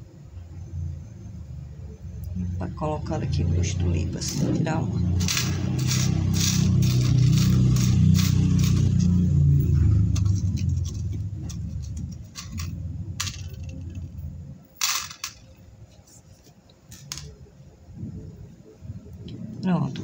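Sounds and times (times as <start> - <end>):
low rumble: 2.2 - 16.2.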